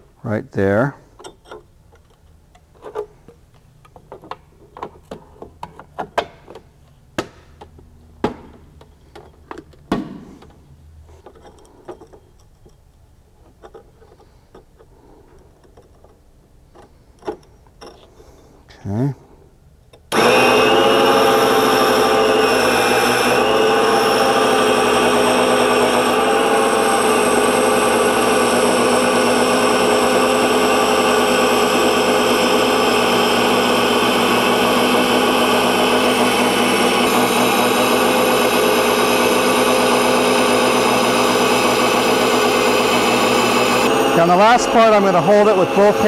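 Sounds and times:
ring saw cutting glass: 20.1s - 46.0s.

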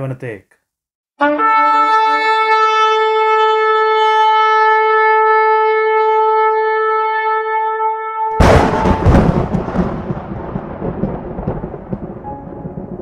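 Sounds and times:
long horn blast: 1.2s - 9.2s.

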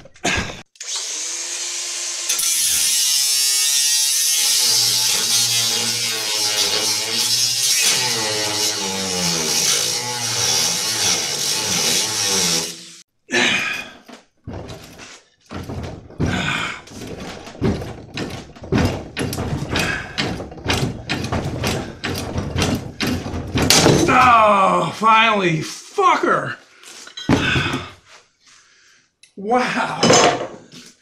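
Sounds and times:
angle grinder cutting steel: 0.8s - 13.0s
heavy metal thunks: 14.4s - 24.4s.

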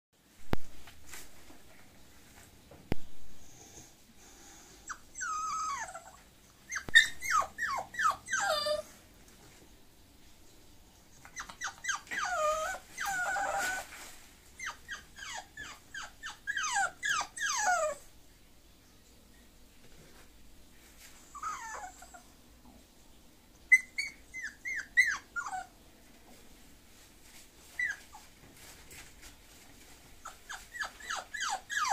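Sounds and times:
puppy whimpering: 4.9s - 8.9s, 11.2s - 13.9s, 14.6s - 18.1s, 21.3s - 22.2s, 23.7s - 25.7s, 27.8s - 28.3s, 30.2s - 31.9s.

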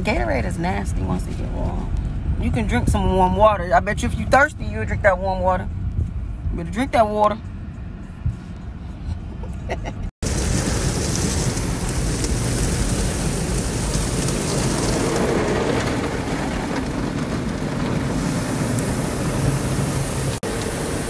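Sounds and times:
car wash brushes: 10.2s - 21.0s
car wash water spraying: 10.2s - 21.0s.

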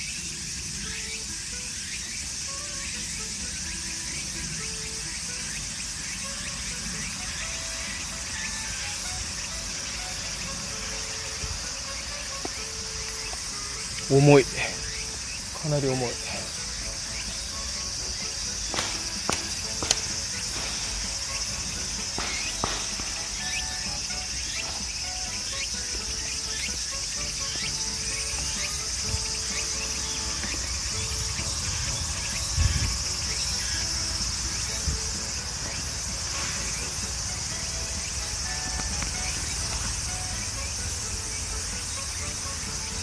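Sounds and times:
insects chirping chorus: 0.0s - 43.0s
twigs and leaves snapping: 18.8s - 20.8s.

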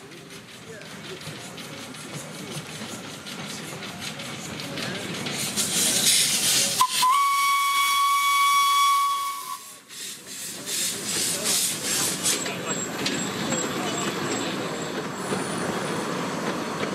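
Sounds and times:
steam locomotive hissing: 0.0s - 16.9s
steam whistle blast: 6.8s - 9.8s.

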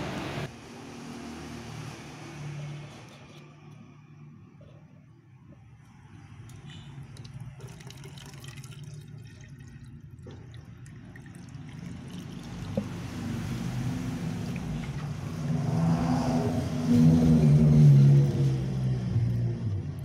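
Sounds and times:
water pouring from a jug: 6.4s - 15.3s.

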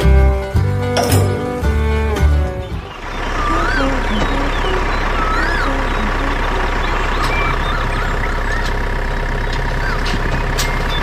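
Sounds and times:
truck engine rumbling: 0.0s - 11.0s
rising and falling whistles: 3.0s - 8.8s.

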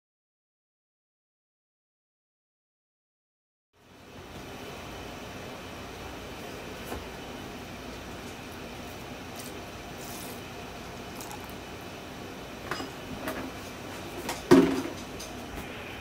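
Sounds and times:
steady hiss: 3.8s - 16.0s.

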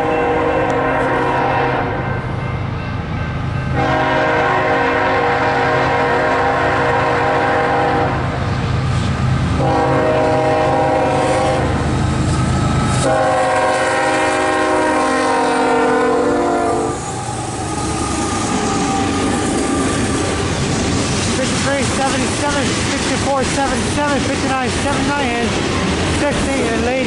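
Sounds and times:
locomotive air horn blasts: 0.0s - 2.1s, 3.8s - 8.2s, 9.6s - 11.8s, 13.0s - 17.0s
train rushing past: 0.0s - 27.0s.

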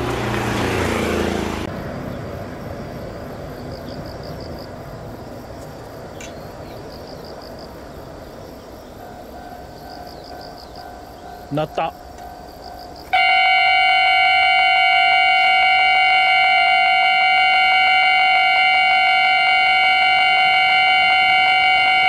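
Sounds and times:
motor vehicle passing: 0.0s - 6.9s
level crossing warning signal: 8.9s - 22.0s.

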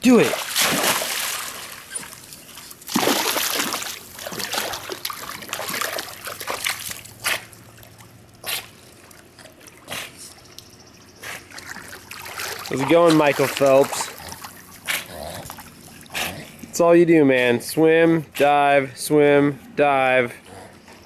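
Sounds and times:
pool water splashing: 0.0s - 10.5s, 11.2s - 16.7s.

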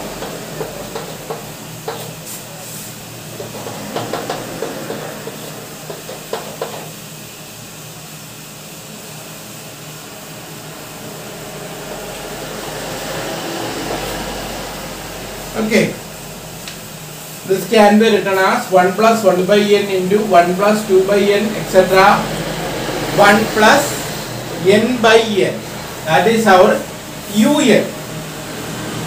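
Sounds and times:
chalk tapping on a blackboard: 0.2s - 2.2s, 3.9s - 6.9s.

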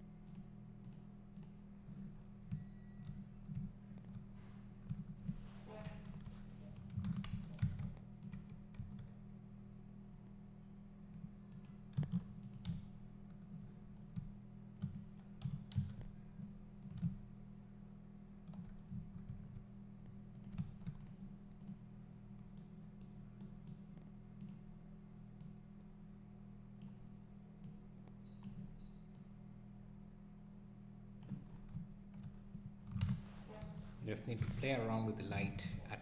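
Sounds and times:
steady low hum: 0.0s - 36.0s
keyboard keystrokes: 6.0s - 9.1s, 11.1s - 16.1s, 16.8s - 17.2s.

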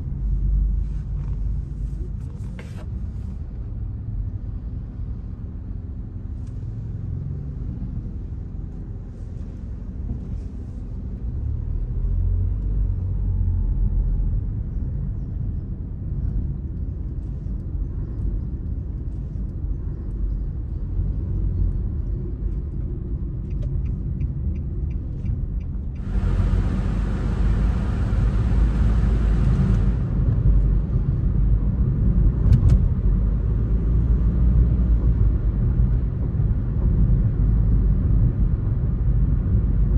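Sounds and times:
car engine and road rumble: 0.0s - 39.9s.

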